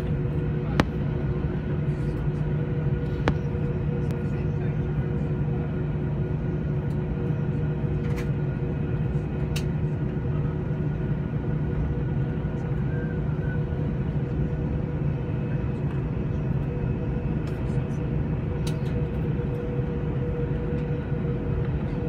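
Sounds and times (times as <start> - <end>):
jet engines rumbling in cabin: 0.0 - 22.0.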